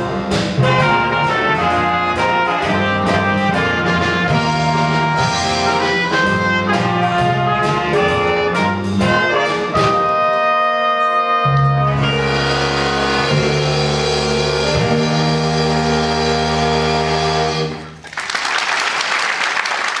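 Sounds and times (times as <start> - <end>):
jazz band holding final chord: 0.0 - 17.8
audience applause: 17.9 - 20.0.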